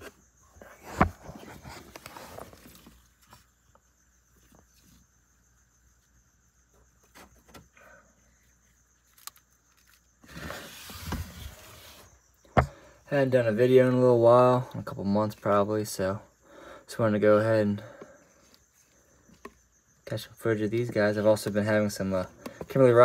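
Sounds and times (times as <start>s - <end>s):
rustling: 0.6s - 5.2s.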